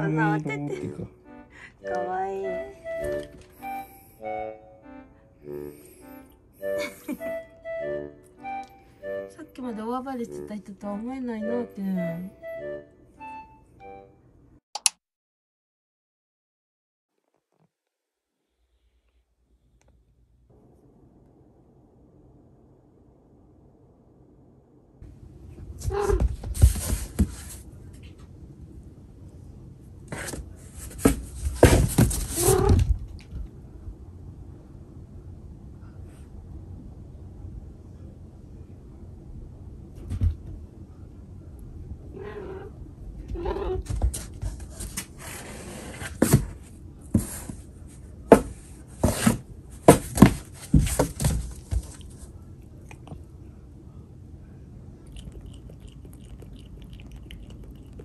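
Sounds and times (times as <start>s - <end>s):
cat scrabbling in cardboard box: 25.8s - 27.6s, 30.2s - 33.2s, 48.3s - 52.1s.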